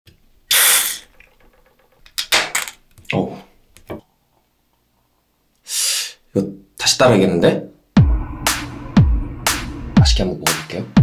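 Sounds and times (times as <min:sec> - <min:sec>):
can cracked open with hiss: 0:00.5 - 0:01.2.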